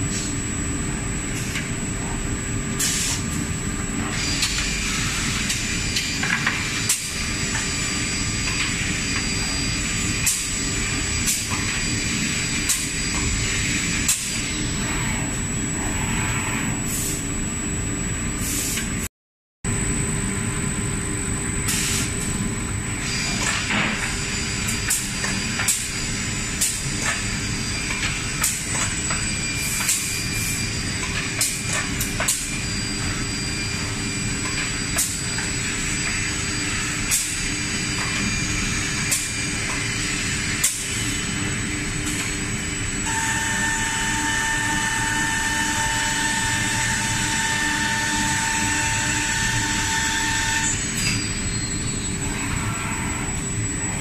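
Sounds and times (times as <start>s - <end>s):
milling machine whine: 22.4s - 54.0s.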